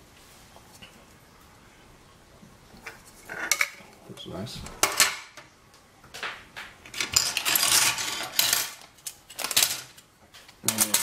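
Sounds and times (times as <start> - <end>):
plastic parts clattering on table: 6.2 - 11.0.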